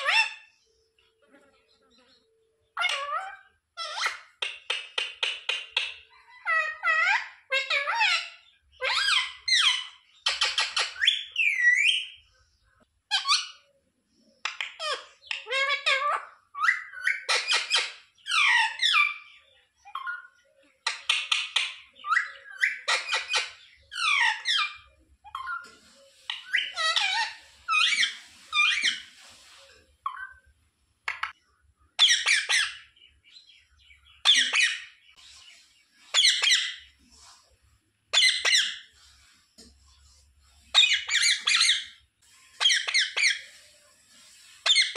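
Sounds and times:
parakeet calling: 0.0 - 0.5, 2.0 - 4.3, 14.6 - 20.3, 20.9 - 29.2, 32.0 - 35.1, 36.1 - 37.0, 38.1 - 38.9, 40.7 - 43.6, 44.4 - 44.9
parakeet raspy chattering calls: 26.3 - 29.1, 40.7 - 42.0, 42.6 - 43.6.

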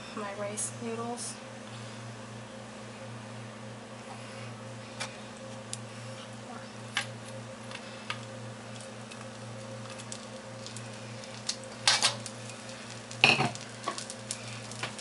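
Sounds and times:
steady low hum: 0.0 - 15.0
noodles dropping into a wok: 11.4 - 12.3.

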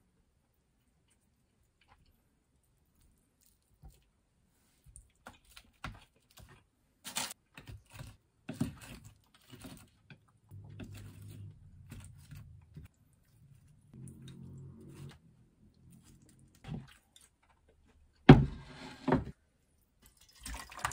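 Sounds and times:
low hum: 10.5 - 16.7.

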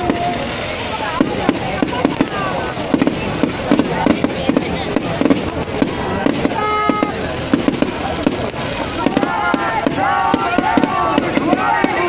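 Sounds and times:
crowd noise: 0.0 - 12.0
fireworks bangs and crackles: 0.0 - 12.0
horn-like tone: 6.5 - 7.2.

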